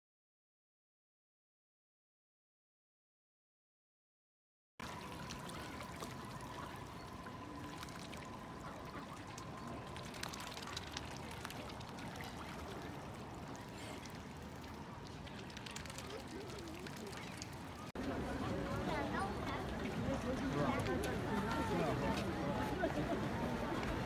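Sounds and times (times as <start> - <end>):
faint steady tone: 4.8 - 15.1
small clicks and splashes: 4.8 - 17.9
steady water rush: 4.8 - 24.0
water lapping and splashing: 4.8 - 24.0.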